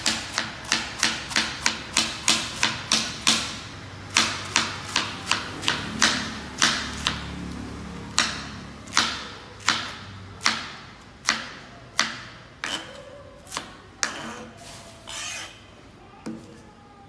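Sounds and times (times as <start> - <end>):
knife scraping across board: 12.6 - 15.7.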